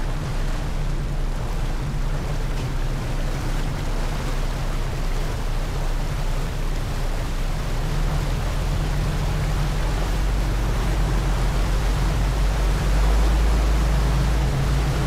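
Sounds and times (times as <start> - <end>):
rush of boat wake: 0.0 - 15.0
ship engines droning: 0.0 - 15.0
wind on microphone: 0.0 - 15.0.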